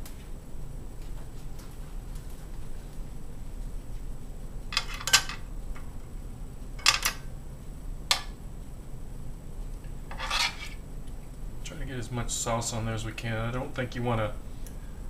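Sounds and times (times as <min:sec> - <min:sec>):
tongs scraping pan: 0:10.1 - 0:10.8.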